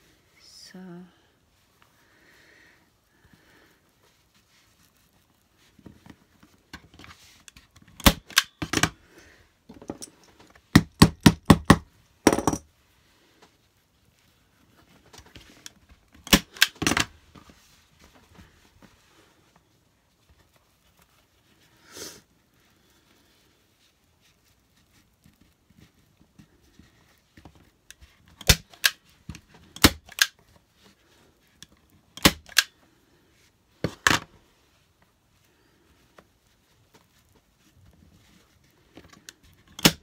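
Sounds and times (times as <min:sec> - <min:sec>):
staple gun snapping: 0:08.0 - 0:08.9, 0:16.3 - 0:17.0, 0:28.4 - 0:29.0, 0:29.8 - 0:30.3, 0:32.2 - 0:32.7, 0:39.8 - 0:40.0.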